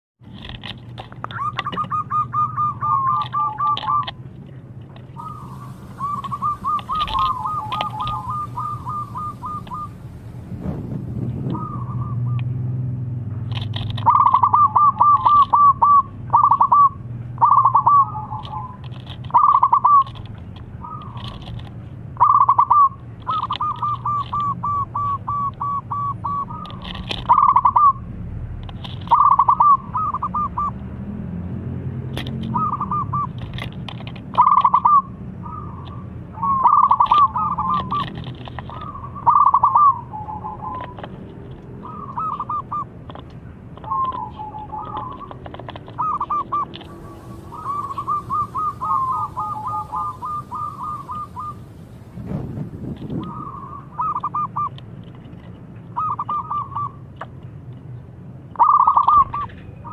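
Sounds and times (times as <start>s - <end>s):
small birds chirping: 1.1s - 10.6s, 11.3s - 12.8s, 13.5s - 28.1s, 28.8s - 31.4s, 32.2s - 52.2s, 52.9s - 58.0s, 58.6s - 59.9s
dove cooing: 1.3s - 4.2s, 5.1s - 10.4s, 11.3s - 12.5s, 14.0s - 28.1s, 29.0s - 30.8s, 32.4s - 33.7s, 34.3s - 42.9s, 43.8s - 51.8s, 53.0s - 54.7s, 56.0s - 57.0s, 58.6s - 59.9s.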